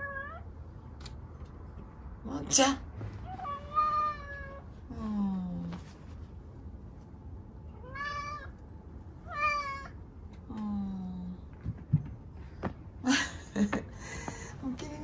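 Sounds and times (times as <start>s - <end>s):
cat meowing loudly: 7.8s - 8.6s, 9.2s - 10.0s.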